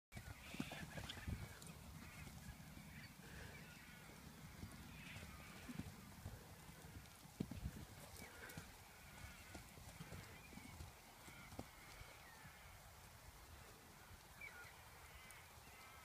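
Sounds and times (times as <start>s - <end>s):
hooves thudding on grass: 0.2s - 16.0s.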